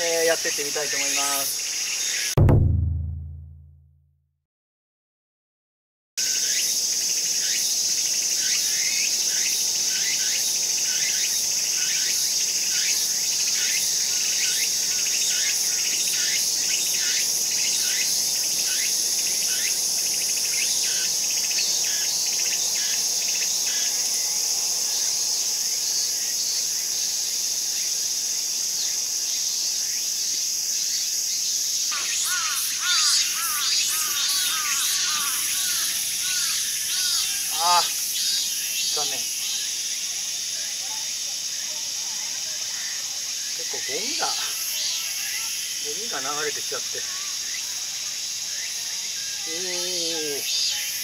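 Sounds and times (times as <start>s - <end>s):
high-pitched insect chorus: 0.0s - 2.3s, 6.2s - 51.0s
short insect chirps: 28.8s - 51.0s.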